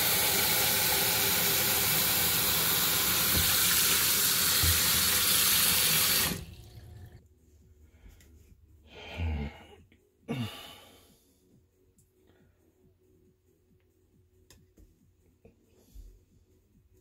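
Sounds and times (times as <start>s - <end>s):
faucet water splashing into tub: 0.0s - 7.2s.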